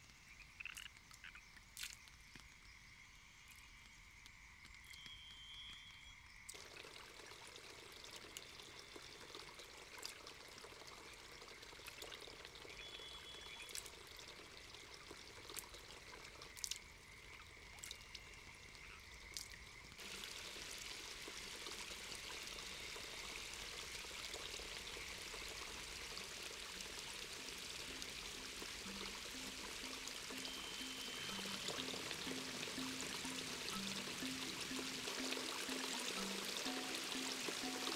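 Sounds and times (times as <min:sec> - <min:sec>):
drip-like clicks: 0:00.0 - 0:02.8, 0:03.4 - 0:07.4, 0:08.0 - 0:20.1, 0:26.7 - 0:37.9
stream water trickling: 0:00.0 - 0:37.9
stream water rushing: 0:25.7 - 0:37.9.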